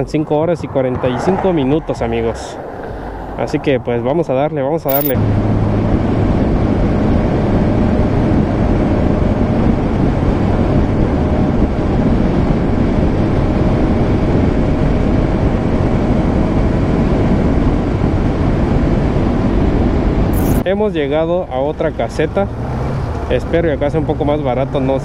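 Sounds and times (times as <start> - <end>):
wind and road noise: 0.0 - 25.0.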